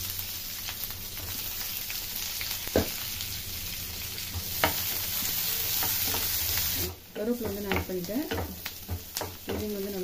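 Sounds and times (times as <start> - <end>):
onions sizzling in hot oil: 0.0 - 10.0
wooden spoon knocking a pan: 7.1 - 10.0.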